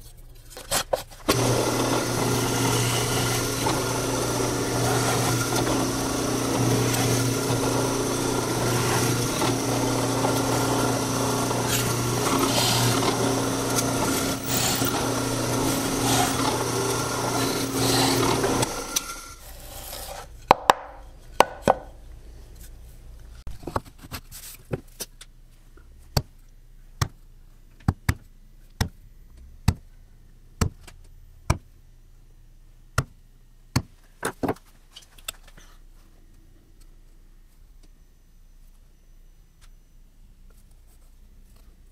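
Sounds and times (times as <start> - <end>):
drill press boring wood: 1.3 - 20.1.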